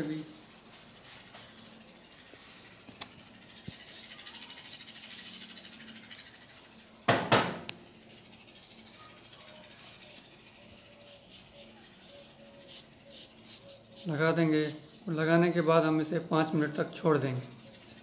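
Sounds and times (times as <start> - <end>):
sponge rubbing and dabbing: 0.0 - 1.6, 3.4 - 5.7, 9.7 - 16.8, 17.4 - 18.0.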